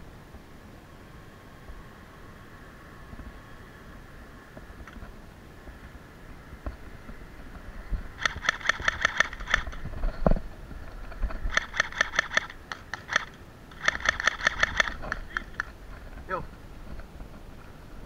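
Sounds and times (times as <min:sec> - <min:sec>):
airsoft pistol shots clicking: 0:08.2 - 0:09.8, 0:11.5 - 0:15.7.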